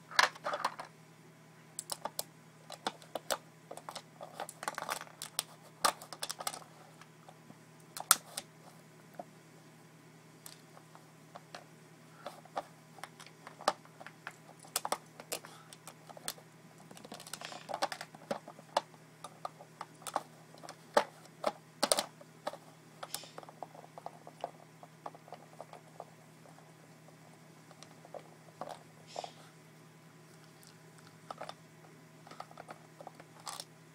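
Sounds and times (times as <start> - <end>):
plastic puzzle feeder clacking: 0.1 - 0.9, 1.8 - 7.1, 8.0 - 8.5, 12.2 - 26.7, 27.6 - 29.3, 31.0 - 31.6, 32.2 - 33.7.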